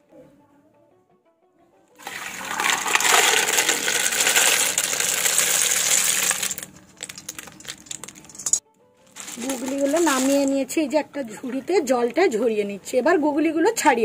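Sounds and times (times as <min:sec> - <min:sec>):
water gushing through colander: 0:02.0 - 0:08.6, 0:09.2 - 0:12.2
snail shells clattering: 0:02.0 - 0:10.6.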